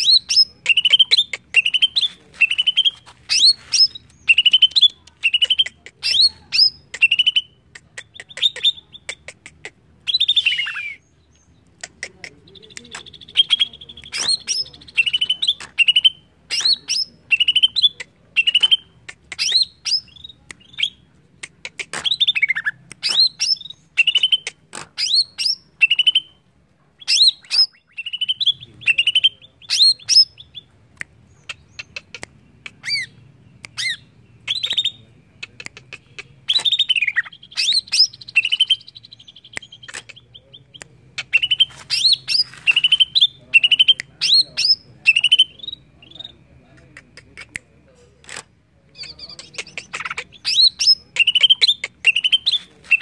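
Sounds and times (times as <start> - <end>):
bird whistling song: 0.0 - 7.6, 10.0 - 11.5, 13.0 - 21.0, 22.1 - 26.4, 27.0 - 30.7, 32.8 - 35.5, 36.5 - 46.4, 49.0 - 53.0.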